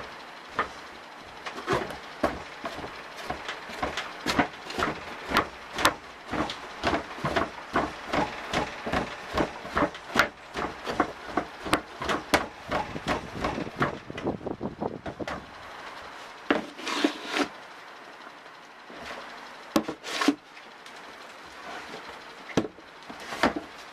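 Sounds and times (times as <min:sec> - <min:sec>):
brick tamping substrate dull thumps: 0:01.4 - 0:14.4, 0:19.8 - 0:20.4, 0:21.6 - 0:23.9.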